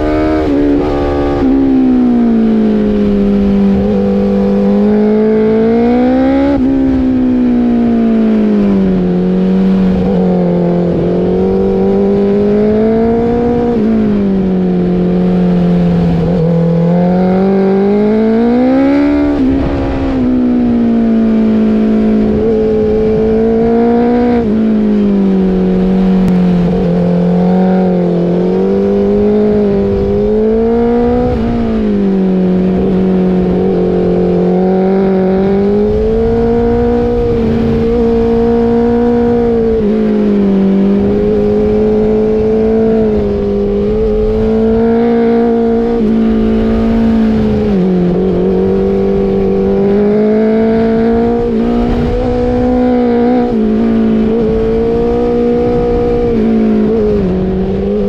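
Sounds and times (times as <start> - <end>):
motorcycle engine at high revs: 0.0 - 58.0
wind noise: 0.0 - 58.0.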